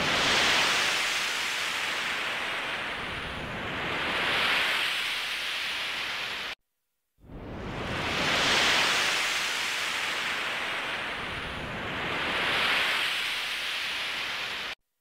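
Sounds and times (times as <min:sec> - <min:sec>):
ocean surf rushing: 0:00.0 - 0:06.6, 0:07.4 - 0:14.8.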